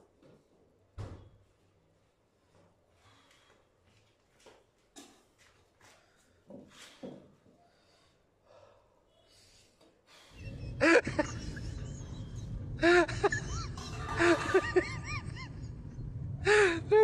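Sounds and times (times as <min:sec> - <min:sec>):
soft breaths: 0:02.3 - 0:04.2, 0:05.8 - 0:10.6
steady low rumble: 0:10.4 - 0:17.0.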